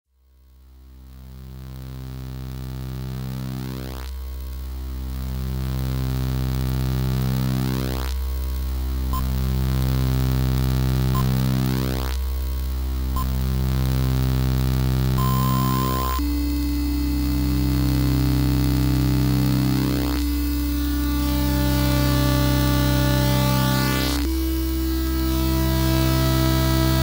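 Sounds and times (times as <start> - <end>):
buzzy beeper music drone: 15.0 - 27.0.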